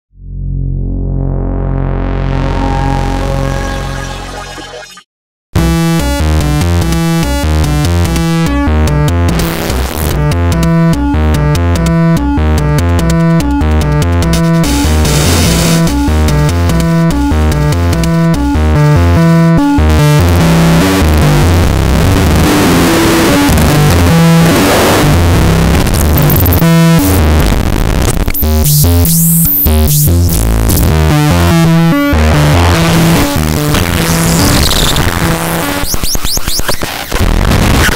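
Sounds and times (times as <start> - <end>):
synth bass line: 0.1 - 36.2
synthesizer stepped note sequence: 0.3 - 37.9
gritty distorted noise: 0.4 - 37.9
high feedback squeals: 2.3 - 5.0.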